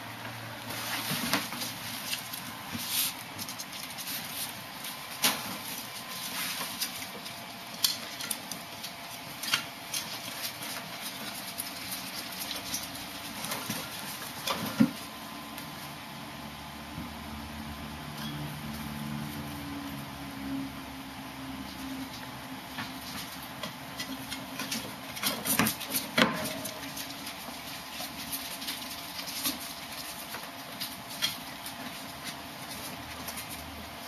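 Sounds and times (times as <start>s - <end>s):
animals scratching and scuffling: 0.3s - 16.4s, 18.0s - 20.2s, 21.3s - 34.0s
knocks and rattles against cage: 22.7s - 33.6s.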